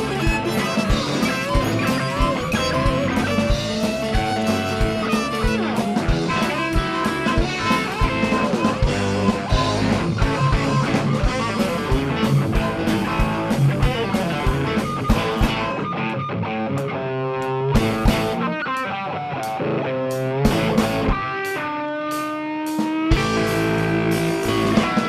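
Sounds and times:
electric guitar lead: 0.0 - 25.0
rock band playing live: 0.0 - 25.0.

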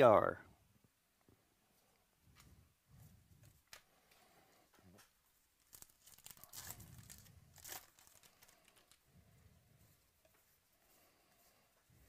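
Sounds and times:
wrapper tearing: 5.6 - 9.0.

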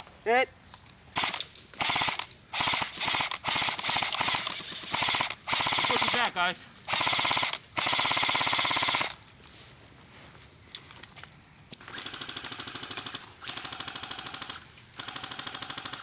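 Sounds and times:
airsoft rifles firing full auto: 1.2 - 9.2, 11.8 - 16.0.

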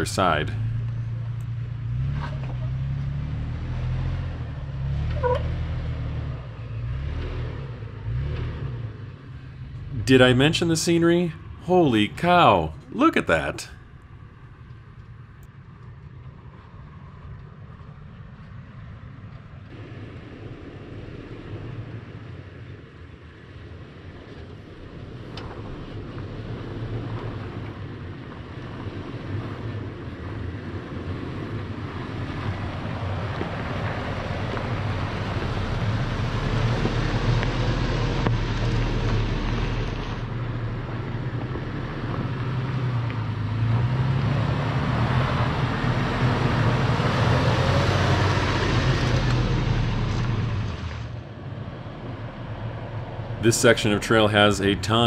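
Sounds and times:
truck engine revving: 0.0 - 13.7, 30.7 - 51.2.

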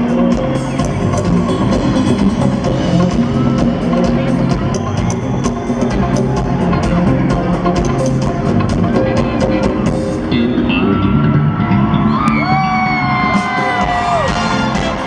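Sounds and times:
live rock band playing: 0.0 - 15.0.

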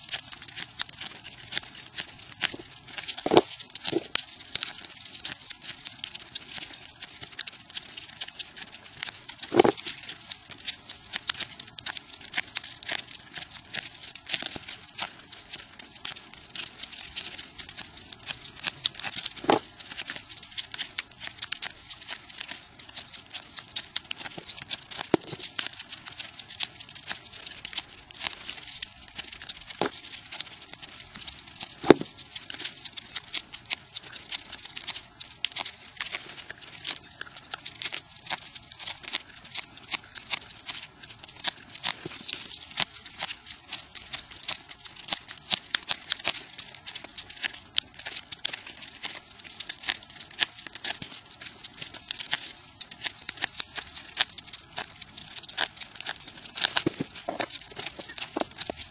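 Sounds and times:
paper rustling and crackling: 0.0 - 58.9.

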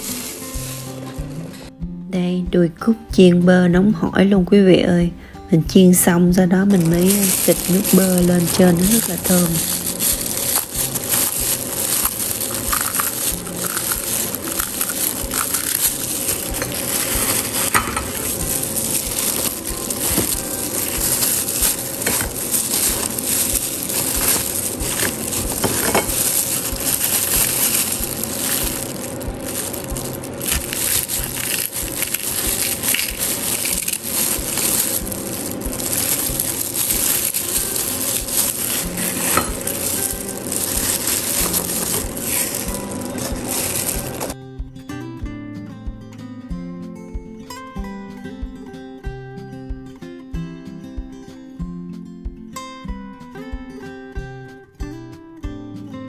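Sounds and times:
crinkling and crunching of rice cakes: 0.0 - 1.6, 6.5 - 44.4.

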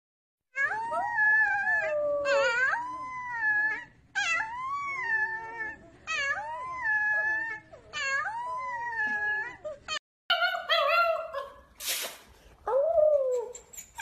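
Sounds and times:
wolf pup howling: 0.6 - 11.6.

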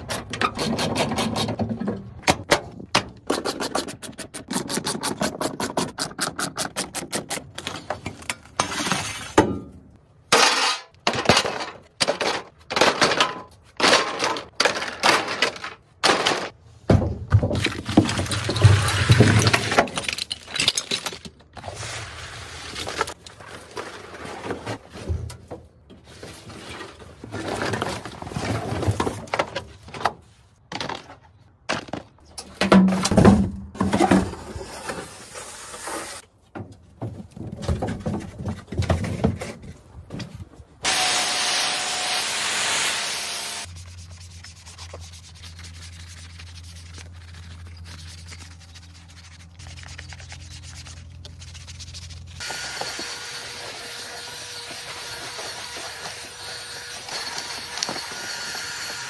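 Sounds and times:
drill brush whirring: 40.9 - 43.7, 52.4 - 59.0
rubbing and scraping strokes: 43.6 - 52.5.

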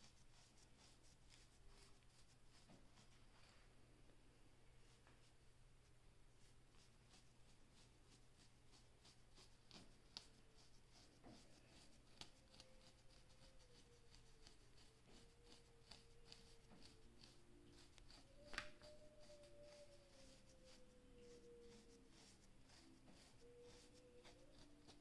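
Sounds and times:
comb scraping hair and scalp: 6.4 - 25.0.

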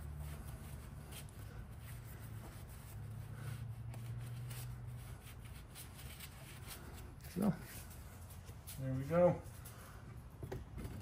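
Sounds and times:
paper towel wiping rubber: 0.0 - 9.4
steady low hum: 0.0 - 11.0.

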